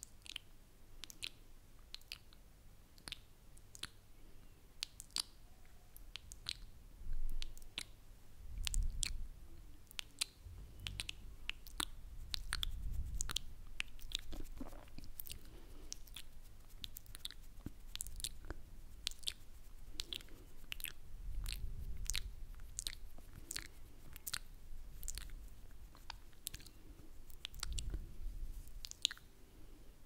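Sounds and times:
lip smacks and tongue clicks: 0:00.0 - 0:04.0, 0:04.8 - 0:05.4, 0:06.0 - 0:08.0, 0:08.6 - 0:09.2, 0:09.8 - 0:29.3
low rumble on microphone: 0:08.4 - 0:16.0, 0:19.7 - 0:28.9.

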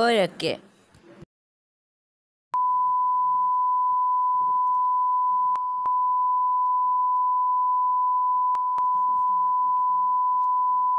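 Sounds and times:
censor bleep tone: 0:02.6 - 0:10.9.

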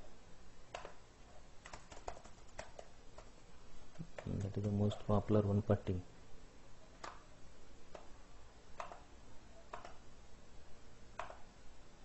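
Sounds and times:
faint computer mouse clicks: 0:08.8 - 0:09.1, 0:09.7 - 0:10.0, 0:11.2 - 0:11.4.

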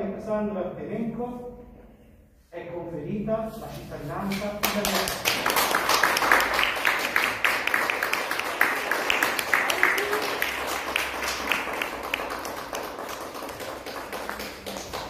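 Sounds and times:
small group applauding: 0:04.3 - 0:15.0.

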